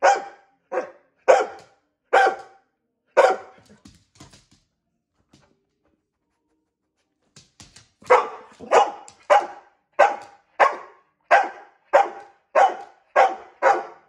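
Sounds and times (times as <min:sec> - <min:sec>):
dog barking loudly: 0:00.0 - 0:02.6, 0:03.2 - 0:03.6, 0:08.1 - 0:14.0.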